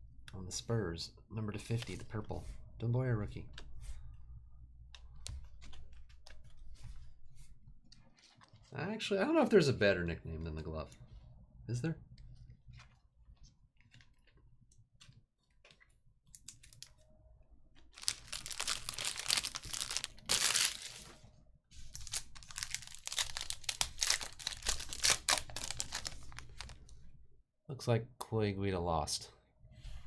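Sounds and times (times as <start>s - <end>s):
foil wrapper crinkling: 17.8s - 27.0s.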